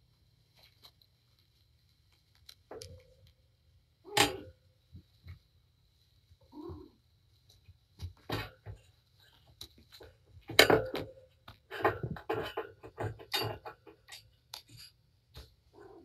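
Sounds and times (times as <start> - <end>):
cats scuffling and scratching: 0.4 - 3.3, 6.3 - 16.0.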